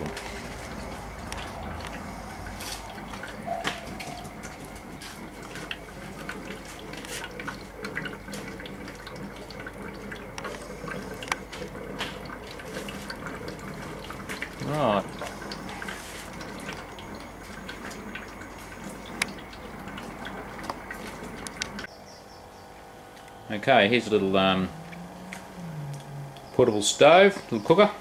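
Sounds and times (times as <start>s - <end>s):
gas bubbling through water: 0.0s - 21.9s.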